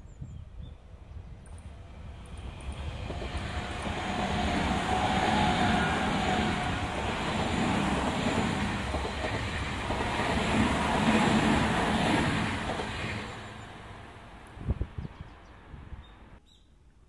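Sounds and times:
train wheels rumbling on rails: 1.4s - 15.0s.

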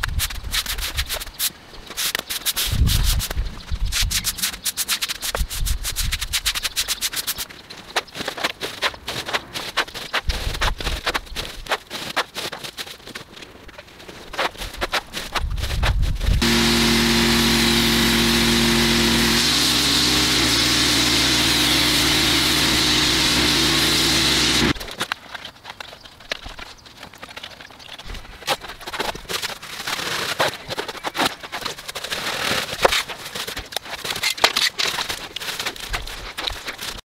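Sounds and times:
pressure washer spraying: 16.4s - 24.8s.

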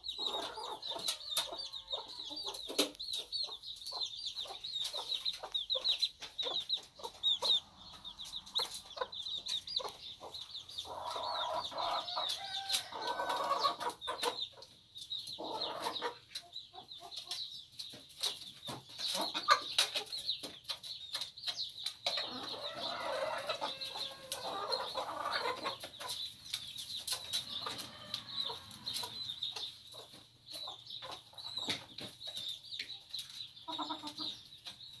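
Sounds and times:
high chirping: 0.0s - 12.6s
hens clucking: 0.0s - 35.0s.

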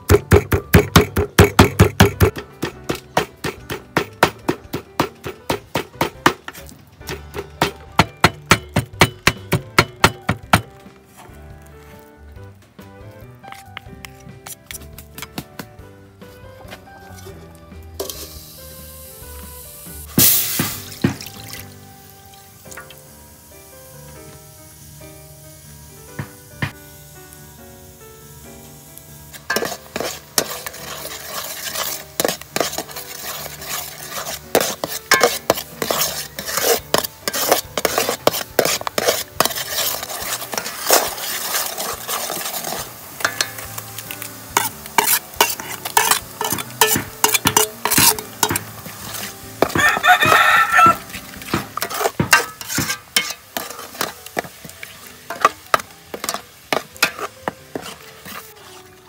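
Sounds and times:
utensil scraping a pan: 0.0s - 12.0s, 13.5s - 15.0s, 16.3s - 18.7s, 29.3s - 59.0s
food sizzling in a pan: 16.8s - 59.0s
rooster crowing: 49.7s - 51.1s.

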